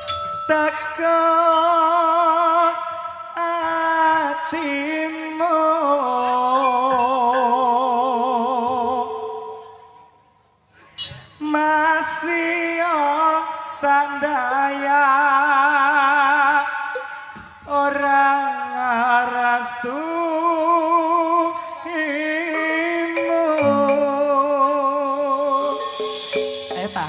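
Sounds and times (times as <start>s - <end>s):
person singing with vibrato: 0.0s - 27.0s
sharp metallic hits: 25.6s - 27.0s.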